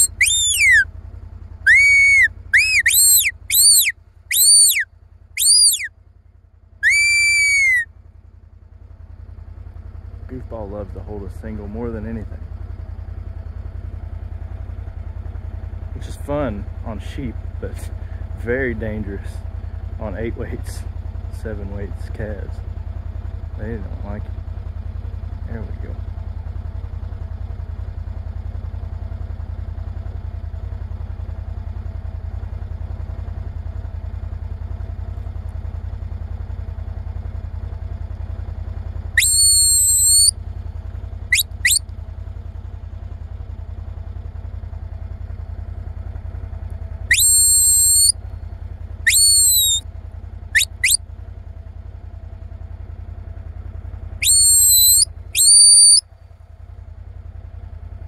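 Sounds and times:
shrill herding whistle blasts: 0.0s - 0.8s, 1.7s - 4.8s, 5.4s - 5.9s, 6.8s - 7.8s, 39.2s - 40.3s, 41.3s - 41.8s, 47.1s - 48.1s, 49.1s - 49.8s, 50.6s - 51.0s, 54.2s - 56.0s.

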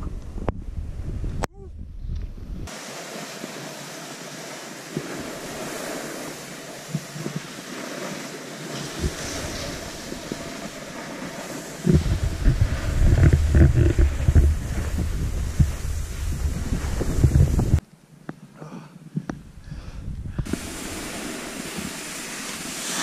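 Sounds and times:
wind buffeting microphone: 0.0s - 2.7s, 8.8s - 17.8s, 19.3s - 22.2s
skis sliding on snow: 2.7s - 17.8s, 20.4s - 23.0s.

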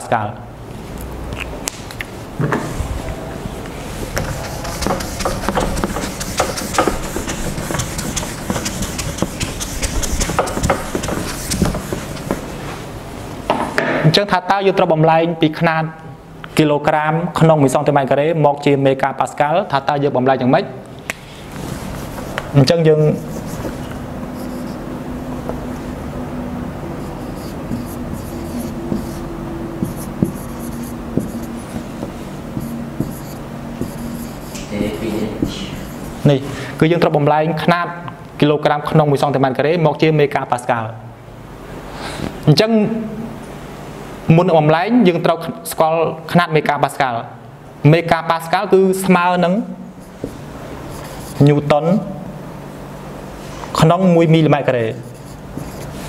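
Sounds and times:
steady low hum: 0.0s - 13.8s, 19.6s - 38.7s, 47.2s - 56.0s
eraser scrubbing whiteboard: 3.9s - 12.8s, 21.4s - 25.8s, 26.9s - 36.5s, 50.0s - 51.7s, 54.9s - 56.0s.

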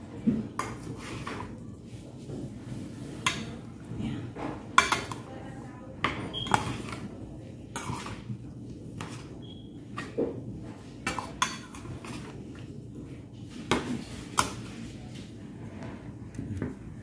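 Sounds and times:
spoons clinking on metal bowl: 4.8s - 5.3s, 6.0s - 7.1s, 7.7s - 8.3s, 11.0s - 12.3s.

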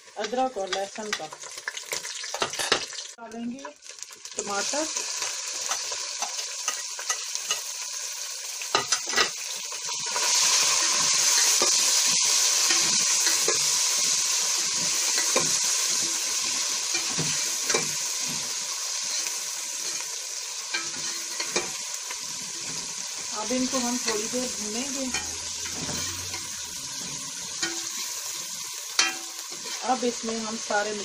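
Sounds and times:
food sizzling in hot oil: 0.0s - 31.0s
spoon stirring and scraping pot: 12.6s - 30.4s.

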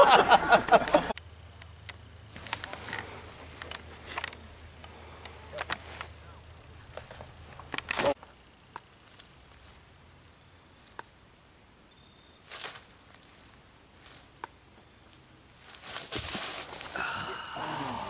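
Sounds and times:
dry leaves crunching: 12.4s - 14.4s, 15.5s - 17.0s.

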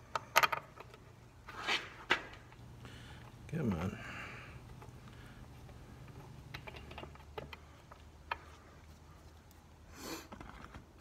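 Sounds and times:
metal clicks and knocks: 0.0s - 1.1s, 6.0s - 8.6s.

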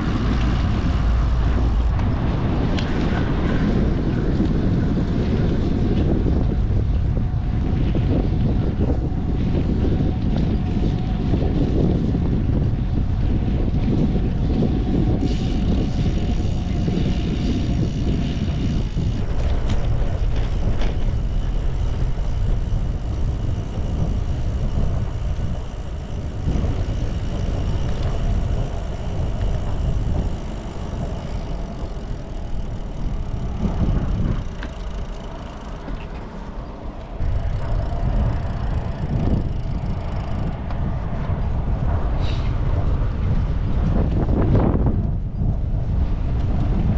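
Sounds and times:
wind rushing over microphone: 0.0s - 46.9s.

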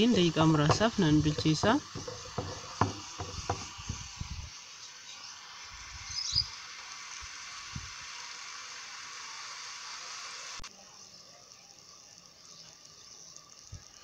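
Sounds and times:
spatula stirring thumps: 0.0s - 4.4s
onion sizzling in hot oil: 0.0s - 14.0s.

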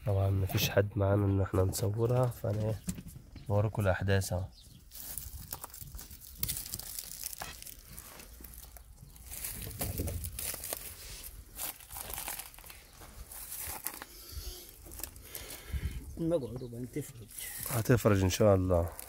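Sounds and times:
straw and plastic rustling: 1.4s - 19.0s.

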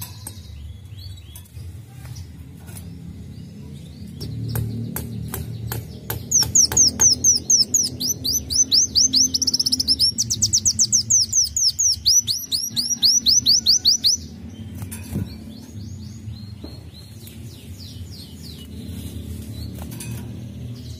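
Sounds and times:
bird ticking calls: 4.2s - 14.7s
bird high trill: 6.3s - 14.3s.

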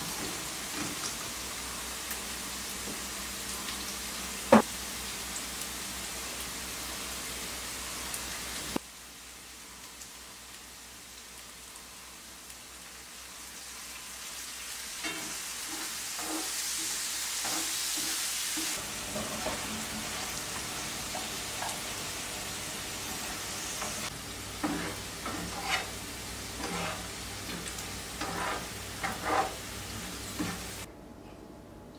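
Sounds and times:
carrots sizzling in oil: 0.0s - 30.9s
spatula scraping and knocking pan: 15.0s - 20.3s, 23.1s - 26.0s, 26.6s - 30.7s.

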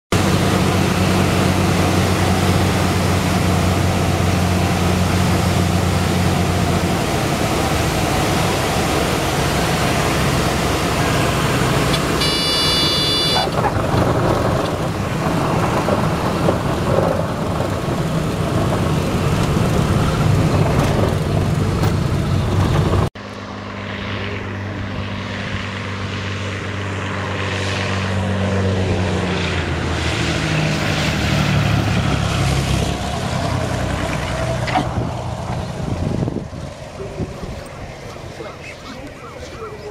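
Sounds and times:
plane engine passing outside: 0.1s - 39.9s
propeller plane engine droning: 0.1s - 39.9s
high warning tone: 12.1s - 13.6s.

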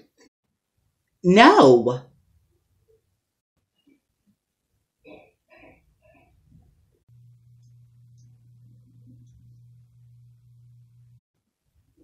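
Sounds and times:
steady low hum: 6.2s - 11.2s.

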